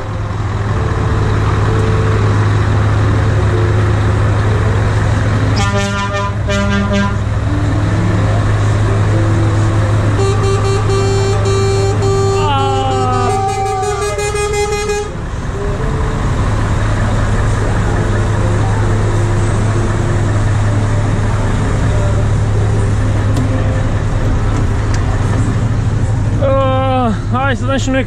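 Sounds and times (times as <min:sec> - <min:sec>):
diesel engine droning: 0:00.0 - 0:28.0
truck horn: 0:05.5 - 0:07.4, 0:10.1 - 0:15.3
short horn toots: 0:10.2 - 0:15.1.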